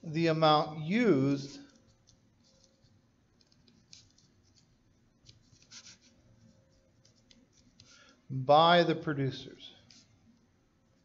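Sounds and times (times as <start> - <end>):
stylus scratching on pen tablet: 1.4 - 7.8.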